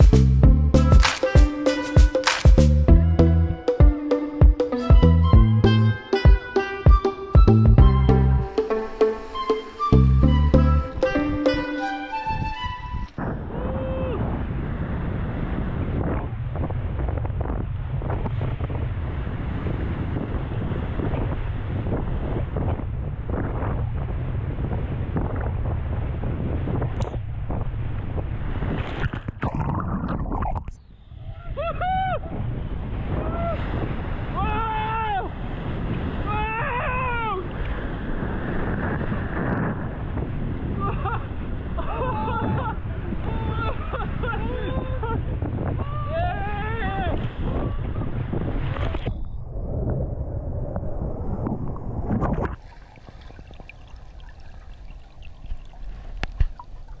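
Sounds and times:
wind buffeting microphone: 9.8 - 57.0
person whooping: 13.5 - 14.3, 31.4 - 32.3, 36.3 - 37.5
underwater gurgle: 29.1 - 30.8, 51.0 - 57.0
ticks and bubbles: 52.3 - 57.0.

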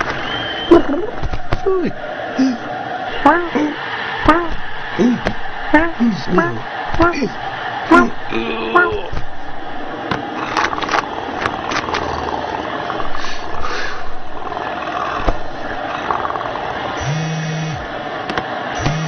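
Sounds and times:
cat purring: 10.4 - 16.6.

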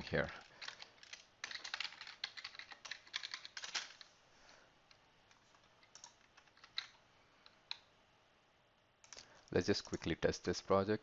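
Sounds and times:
computer keyboard typing: 0.6 - 4.1, 5.4 - 7.0.

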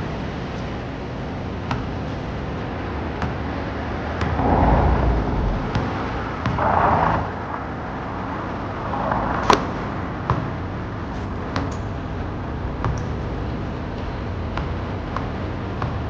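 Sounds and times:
traffic rumble: 3.5 - 15.7.

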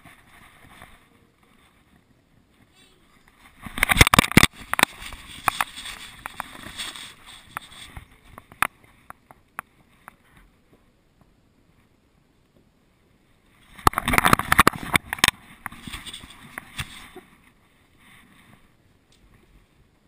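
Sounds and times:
camera housing knocking and rubbing: 3.6 - 8.7, 13.8 - 17.1.

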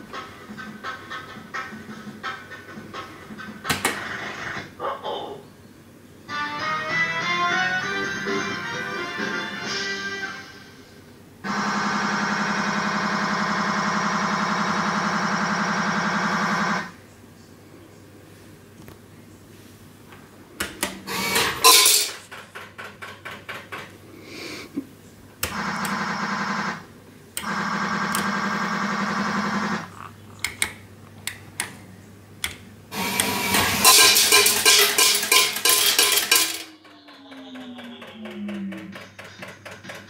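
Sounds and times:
coins clattering into metal tray: 21.3 - 22.3, 33.4 - 36.8.

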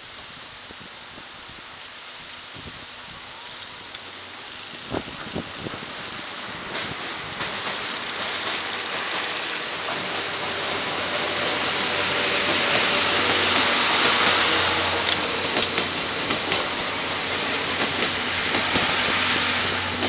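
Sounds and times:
train wheels on rails: 0.0 - 20.0
sharp clicks: 6.2 - 10.2.

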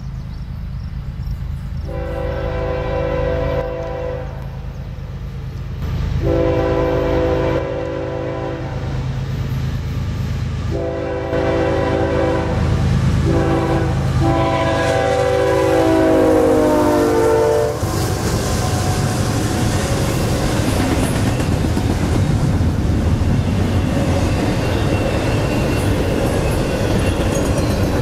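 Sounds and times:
locomotive air horn blasts: 1.9 - 4.6, 6.2 - 9.0, 10.7 - 18.1.

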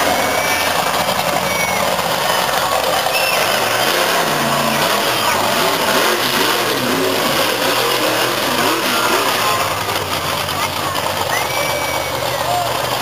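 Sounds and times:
monster truck engines revving: 0.0 - 13.0.

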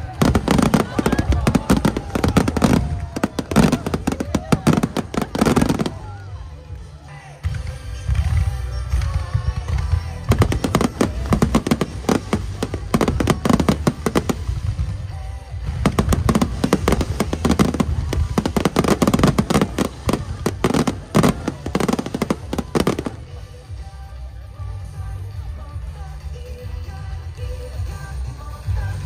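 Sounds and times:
fireworks bangs: 0.0 - 6.3, 9.8 - 23.2
music playing: 0.0 - 29.0.

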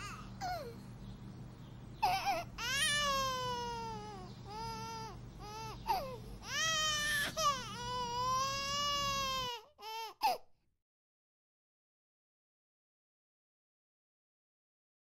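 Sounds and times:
toddler crying: 0.0 - 0.8, 2.0 - 10.4
toddler sobbing: 0.0 - 0.8, 2.0 - 10.4.

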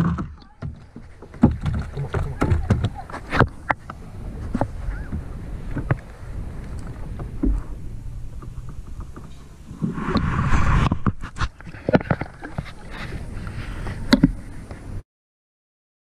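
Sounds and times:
knocks on plastic kayak hull: 0.0 - 3.0
short rushing burst: 9.7 - 11.5.

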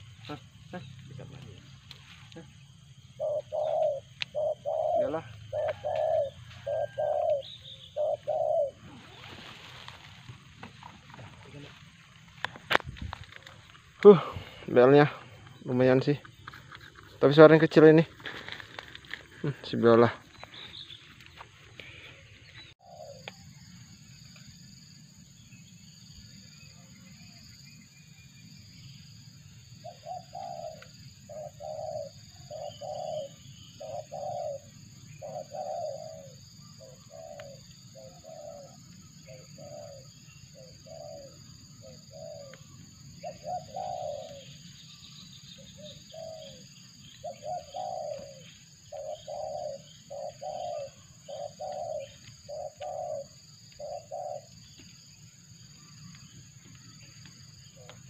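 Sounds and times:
dove cooing: 3.1 - 11.7, 21.8 - 23.6, 29.8 - 54.8.

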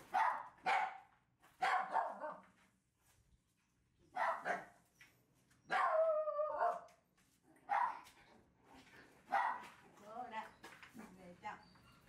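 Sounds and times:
puppy barking: 0.0 - 2.4, 4.1 - 4.8, 5.7 - 6.9, 7.6 - 8.1, 9.3 - 9.8.

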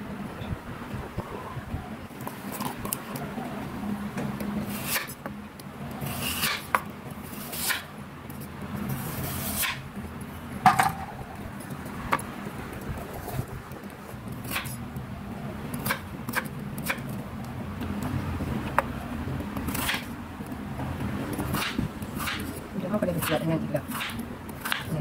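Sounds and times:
knife scraping strokes: 4.7 - 5.2, 6.0 - 7.9, 8.9 - 9.8.

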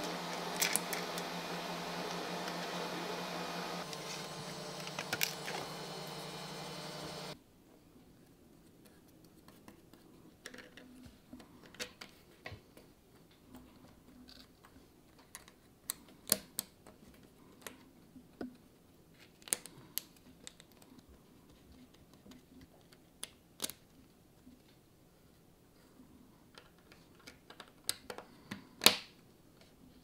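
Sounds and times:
plastic parts clicking: 0.6 - 1.2.

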